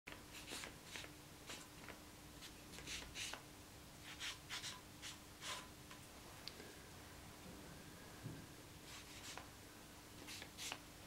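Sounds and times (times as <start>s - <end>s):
marker pen scratching paper: 0.3s - 3.4s, 4.0s - 5.7s, 8.9s - 9.5s, 10.2s - 10.8s.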